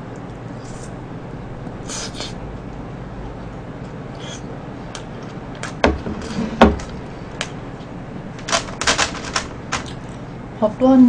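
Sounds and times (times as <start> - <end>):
bowl knocking on table: 5.8 - 6.8.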